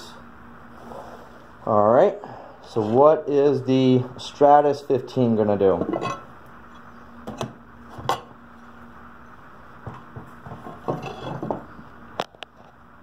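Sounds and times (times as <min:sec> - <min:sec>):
faint steady hum: 0:00.0 - 0:13.0
glass panels clinking: 0:05.8 - 0:06.3.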